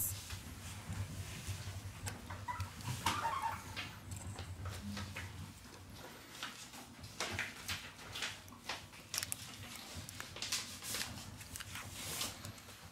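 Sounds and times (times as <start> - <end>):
plastic film crinkling: 4.6 - 12.9.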